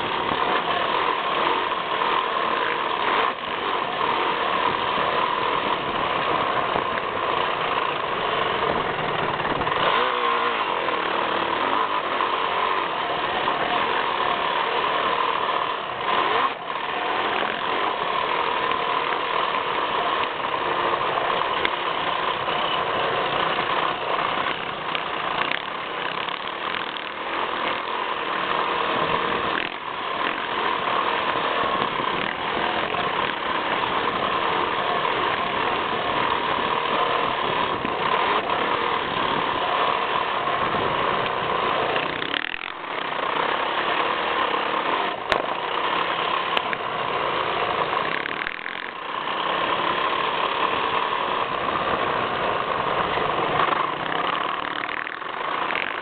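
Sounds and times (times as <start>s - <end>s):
dirt bike engine running hard: 0.0s - 56.0s.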